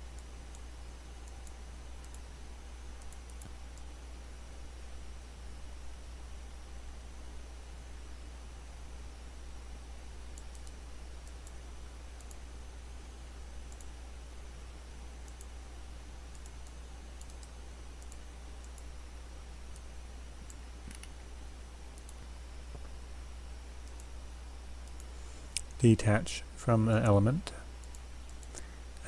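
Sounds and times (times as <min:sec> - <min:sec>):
low electrical hum and hiss: 0:00.0 - 0:29.0
computer mouse clicks: 0:00.1 - 0:02.3, 0:03.0 - 0:03.9, 0:10.3 - 0:11.6, 0:12.2 - 0:12.4, 0:13.7 - 0:14.0, 0:15.3 - 0:15.6, 0:16.3 - 0:18.9, 0:19.7 - 0:21.3, 0:21.9 - 0:23.0, 0:23.8 - 0:24.2, 0:24.8 - 0:25.8, 0:27.8 - 0:28.7.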